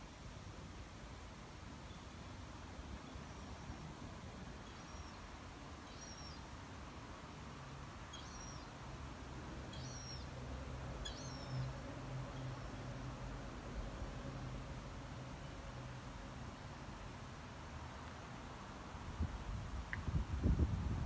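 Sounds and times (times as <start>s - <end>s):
faint outdoor background noise: 0.0s - 21.0s
small bird chirping: 4.7s - 6.5s, 8.1s - 8.7s, 9.7s - 10.3s, 11.0s - 11.7s.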